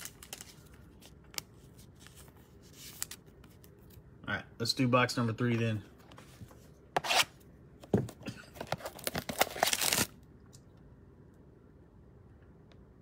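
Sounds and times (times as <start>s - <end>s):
plastic wrap tearing: 8.8s - 10.2s.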